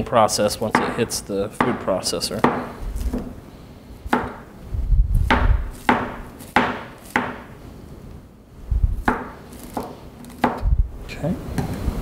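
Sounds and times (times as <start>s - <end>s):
knife chopping on cutting board: 4.1s - 4.4s, 5.3s - 7.5s, 9.0s - 10.6s.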